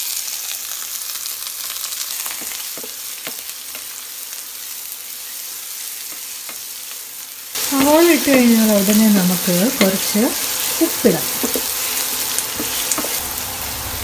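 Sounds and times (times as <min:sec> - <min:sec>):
onions sizzling in oil: 0:00.0 - 0:14.0
spatula knocking on pan: 0:09.7 - 0:10.2, 0:11.3 - 0:11.8, 0:12.5 - 0:13.2.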